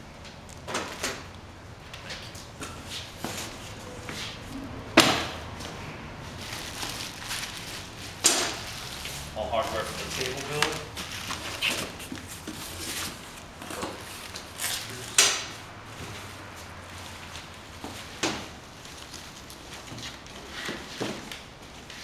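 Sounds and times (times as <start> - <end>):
packaging rustling: 6.3 - 15.2.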